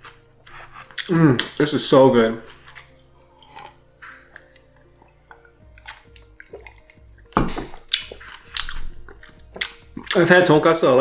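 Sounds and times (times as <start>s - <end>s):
faint background music: 0.0s - 11.0s
person drinking: 2.5s - 7.3s.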